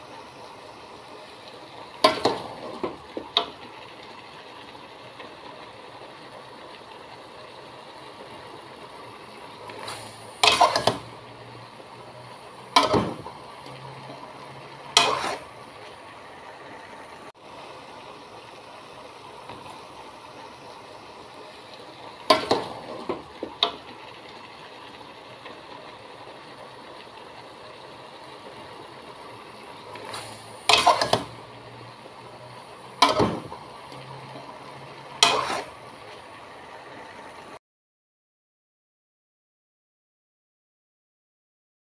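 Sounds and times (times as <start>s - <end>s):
steady hiss: 0.0s - 37.6s
metal spatula scraping pot: 14.9s - 15.6s, 30.7s - 31.3s, 35.2s - 35.8s.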